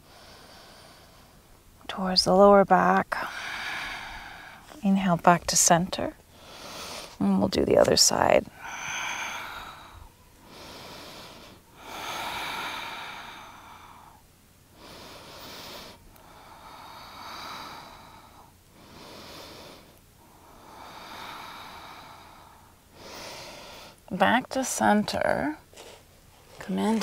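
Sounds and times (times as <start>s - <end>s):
person breathing slowly and deeply: 0.0s - 1.5s, 3.2s - 4.8s, 8.5s - 24.0s.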